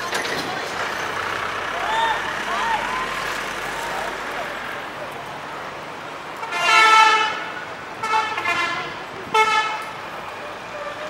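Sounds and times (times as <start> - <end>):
road traffic: 0.0 - 11.0
vehicle horn honking: 6.4 - 9.9.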